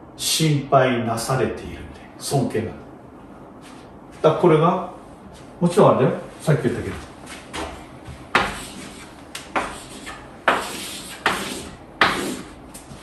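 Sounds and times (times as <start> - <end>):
chalk writing on blackboard: 8.3 - 13.0.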